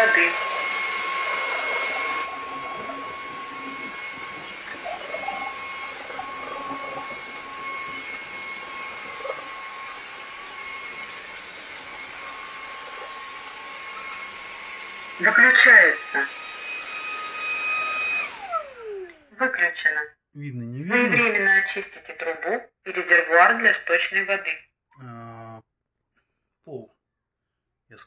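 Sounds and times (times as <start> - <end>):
vacuum motor hum with whine: 0.0 - 19.3.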